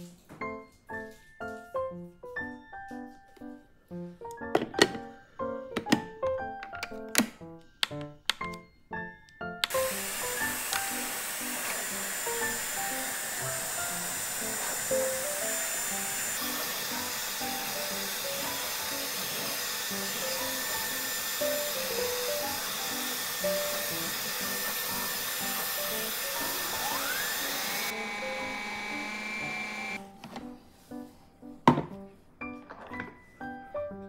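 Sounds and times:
background music: 0.0s - 34.0s
hair dryer blowing air: 9.6s - 30.0s.

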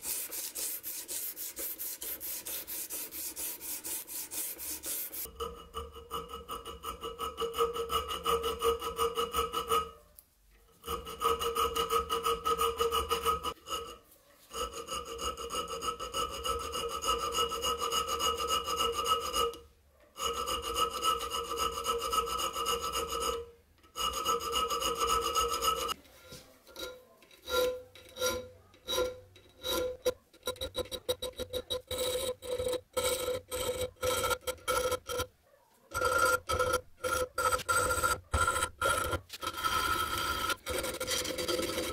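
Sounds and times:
metal file on knife blade: 0.0s - 10.0s, 10.8s - 19.6s, 20.2s - 26.0s, 26.8s - 35.3s, 35.9s - 41.9s.

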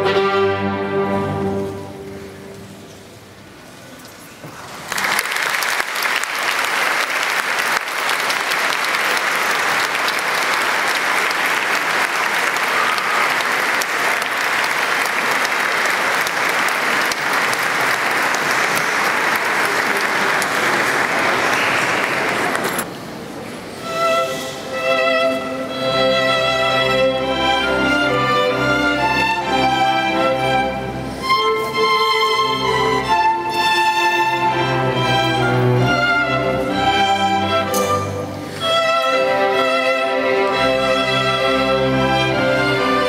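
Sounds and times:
large audience applauding: 4.6s - 22.8s.

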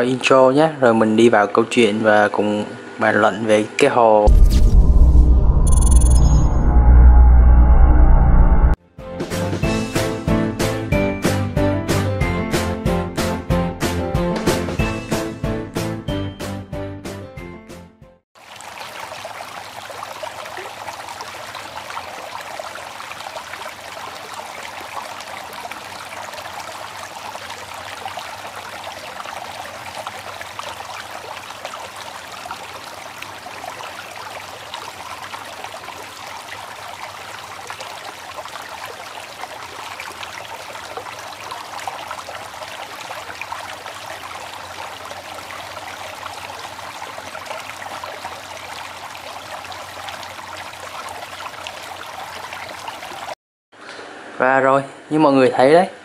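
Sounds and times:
water trickling and splashing: 18.4s - 53.4s.

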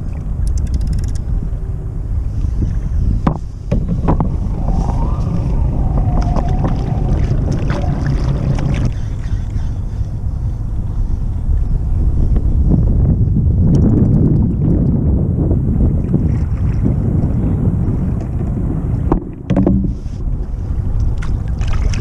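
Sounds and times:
wind rumbling on microphone: 0.0s - 22.0s
kayak paddle knocking and splashing: 3.3s - 9.1s, 18.1s - 20.0s.

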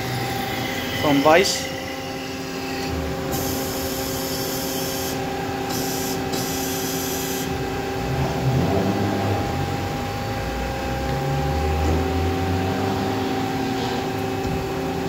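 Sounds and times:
hydraulic unit humming: 0.0s - 15.0s
hydraulic hissing: 0.1s - 7.6s.

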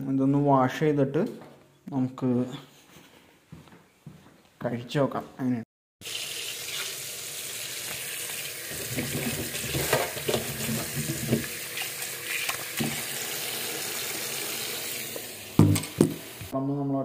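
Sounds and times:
tap water running into sink: 6.0s - 16.5s.

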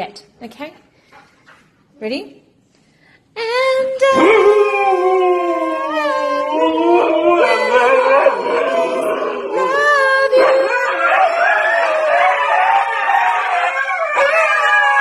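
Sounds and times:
person singing: 3.7s - 11.0s
dog howling: 4.0s - 15.0s.

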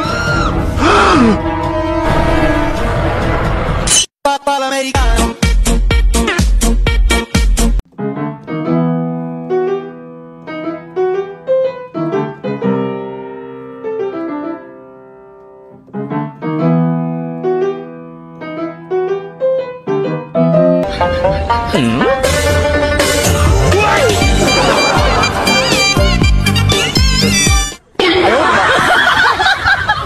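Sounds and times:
music track with deep bass: 5.0s - 7.8s, 20.6s - 27.8s
solo piano music: 7.9s - 21.7s.

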